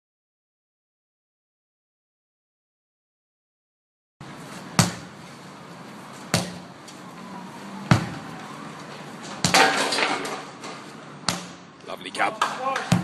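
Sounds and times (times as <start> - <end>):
sledgehammer thuds on rubber tyre: 4.7 - 5.2, 6.3 - 6.7, 7.9 - 8.2, 9.4 - 10.3, 11.2 - 11.7, 12.7 - 13.0.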